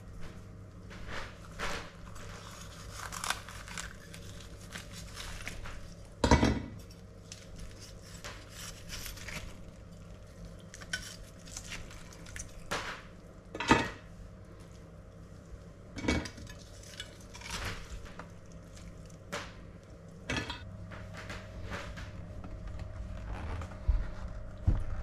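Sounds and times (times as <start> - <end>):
knife scraping crackling skin: 2.0 - 6.0, 6.8 - 10.0, 10.6 - 12.7.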